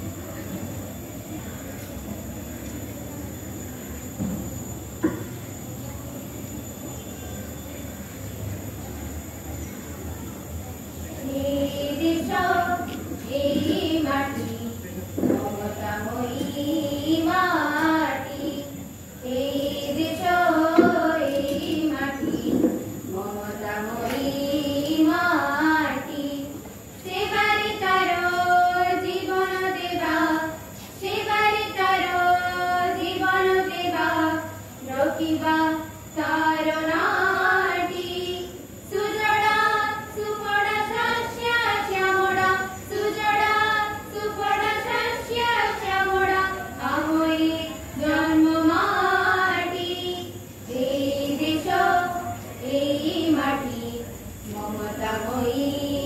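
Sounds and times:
children singing: 11.2 - 56.0.

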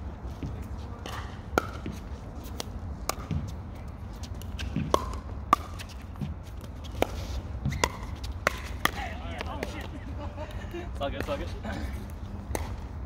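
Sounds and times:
paddles striking pickleball: 1.0 - 3.6, 4.2 - 9.9, 11.1 - 11.6, 12.5 - 12.9.

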